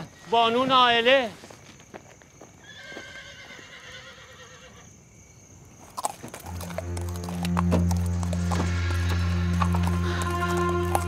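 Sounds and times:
horse whinnying: 0:02.6 - 0:04.9, 0:06.4 - 0:11.0
hoof clops: 0:05.9 - 0:11.0
low music drone: 0:06.4 - 0:11.0.

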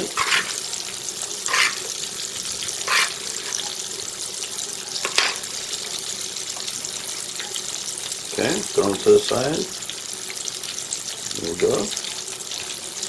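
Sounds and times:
metal spoon scraping metal pan: 0:00.0 - 0:00.8, 0:01.4 - 0:01.9, 0:02.7 - 0:03.8, 0:04.9 - 0:05.5
hot oil sizzling: 0:00.0 - 0:13.0.

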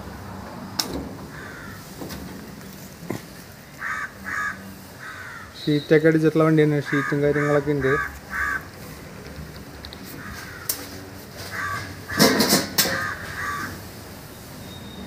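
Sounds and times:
crows cawing: 0:01.3 - 0:02.0, 0:03.7 - 0:05.6, 0:06.7 - 0:08.8, 0:10.1 - 0:13.8.

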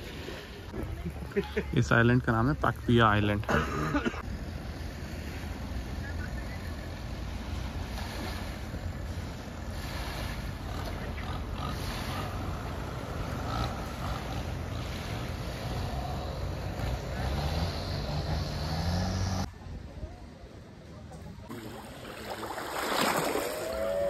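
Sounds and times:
speedboat outboard engines: 0:00.0 - 0:24.0
rushing water: 0:21.5 - 0:24.0.

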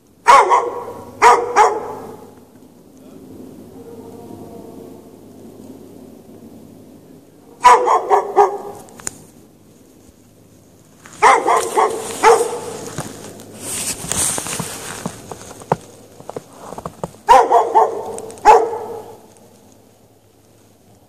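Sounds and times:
dog barking: 0:00.2 - 0:02.4, 0:07.6 - 0:08.9, 0:11.2 - 0:13.0, 0:17.2 - 0:19.3.

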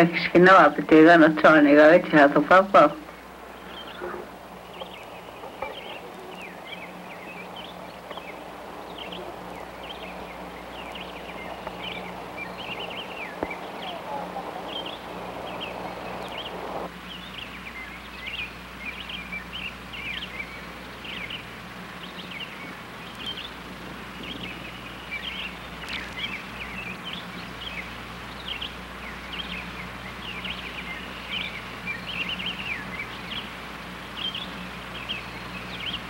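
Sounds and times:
band of noise: 0:00.0 - 0:17.0
small birds chirping: 0:00.0 - 0:36.0
steady low hum: 0:00.0 - 0:36.0.

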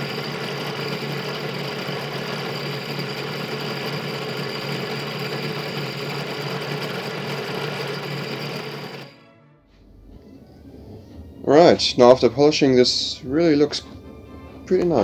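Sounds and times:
drill press motor running: 0:00.0 - 0:09.2.

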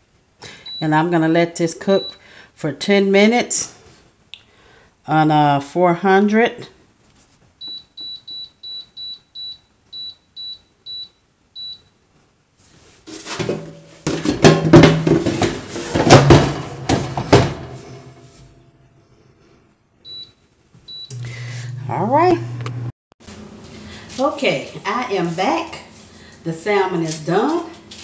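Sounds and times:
air fryer basket clattering: 0:13.1 - 0:18.6.

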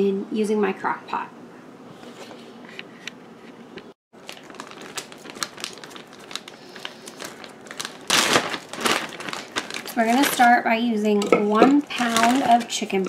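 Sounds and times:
plastic bag crinkling: 0:04.2 - 0:13.0.

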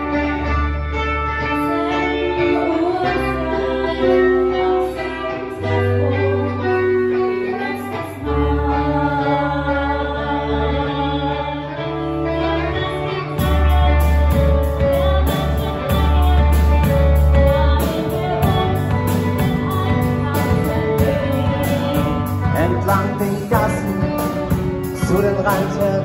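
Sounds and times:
bass guitar: 0:00.0 - 0:26.0
woman singing: 0:01.4 - 0:26.0
drum kit beat with cymbals: 0:13.4 - 0:26.0.

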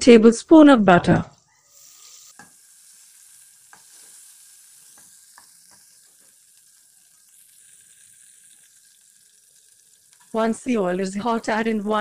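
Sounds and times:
butter sizzling in pan: 0:00.1 - 0:12.0
sharp pops of oil: 0:05.0 - 0:05.9.

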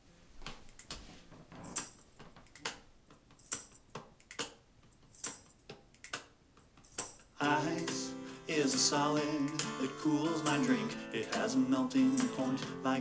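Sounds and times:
jingling percussion beat: 0:06.9 - 0:13.0.

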